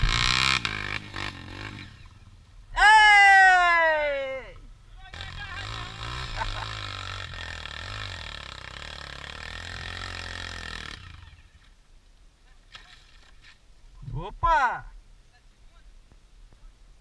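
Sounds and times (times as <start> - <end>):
dirt bike engine running: 0.0 - 2.5, 5.0 - 11.7.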